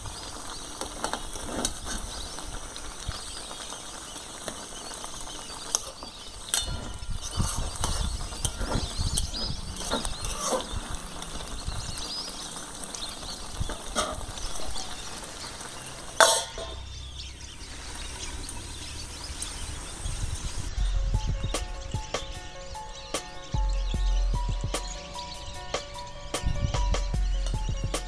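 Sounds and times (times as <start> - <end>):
thick stew bubbling and popping: 0.0 - 28.0
metal lid clanking onto pan: 16.2 - 16.8.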